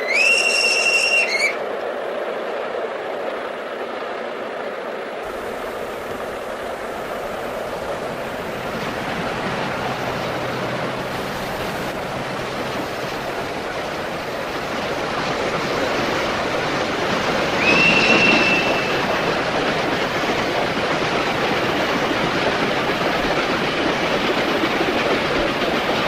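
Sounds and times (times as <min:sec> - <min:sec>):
steam train rushing past: 0:00.0 - 0:26.0.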